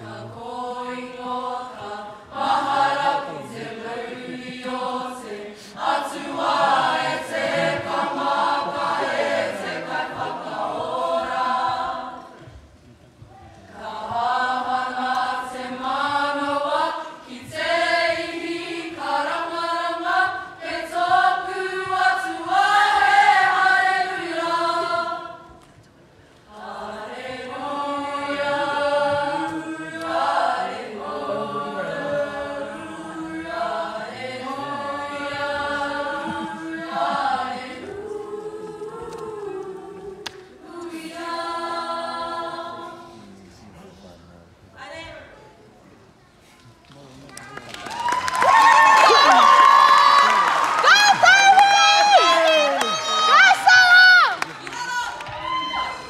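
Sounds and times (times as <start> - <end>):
choir singing in harmony: 0.0 - 12.6, 13.7 - 25.7, 26.4 - 43.4.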